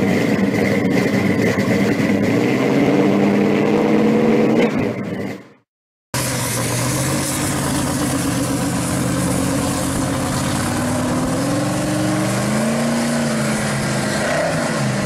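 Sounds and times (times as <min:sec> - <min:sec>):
car engine running: 0:00.0 - 0:02.4, 0:06.2 - 0:14.4.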